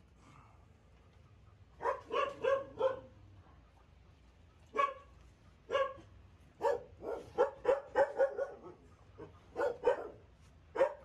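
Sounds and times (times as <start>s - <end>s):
dog barking: 1.8s - 3.2s, 4.7s - 5.1s, 5.7s - 11.0s.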